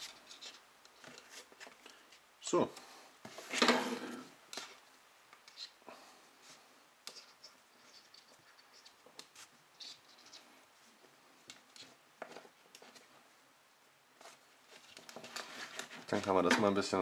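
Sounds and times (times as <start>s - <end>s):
paracord scratching and rustling: 0.0s - 2.3s, 3.3s - 5.8s, 6.4s - 13.2s, 14.2s - 16.5s.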